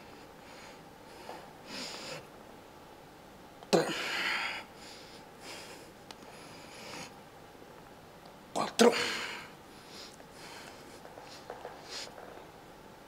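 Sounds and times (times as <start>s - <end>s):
man breathing forcefully: 0.0s - 2.3s, 3.8s - 7.2s, 8.9s - 12.2s.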